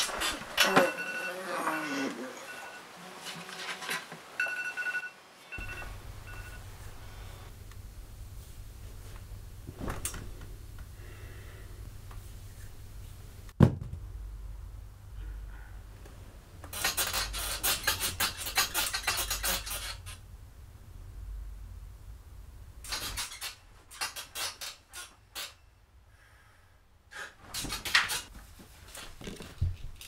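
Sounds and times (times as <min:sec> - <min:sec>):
bedding rustling: 0:08.3 - 0:10.8, 0:27.4 - 0:30.0.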